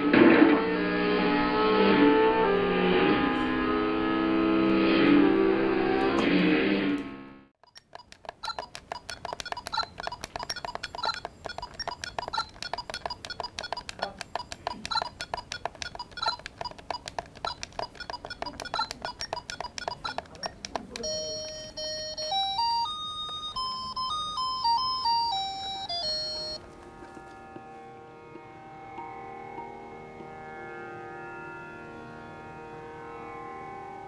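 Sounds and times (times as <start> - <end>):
fast electronic ticks and beeps: 7.6 - 22.5
simple beeping tune: 7.6 - 26.6.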